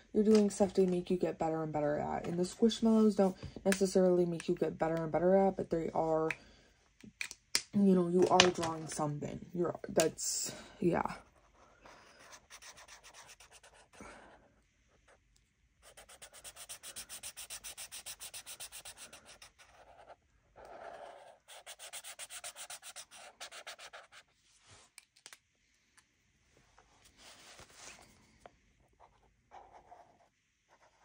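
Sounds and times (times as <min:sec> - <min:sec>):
marker scrubbing on paper: 0:11.9 - 0:14.0, 0:15.8 - 0:24.3.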